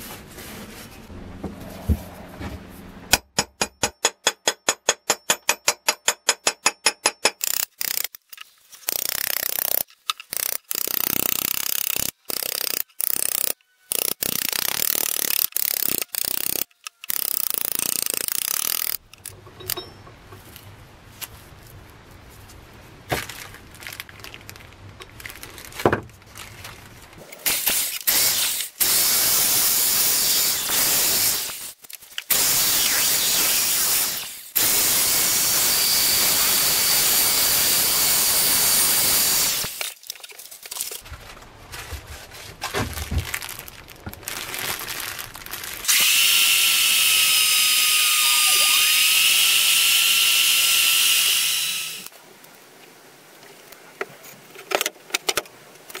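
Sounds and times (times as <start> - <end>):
hammer tapping steel punch: 3.1 - 7.4
drill sanding disc on steel: 45.9 - 52.1.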